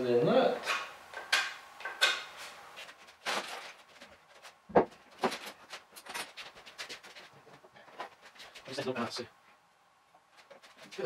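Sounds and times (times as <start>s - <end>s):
wooden knocks: 4.7s - 5.4s.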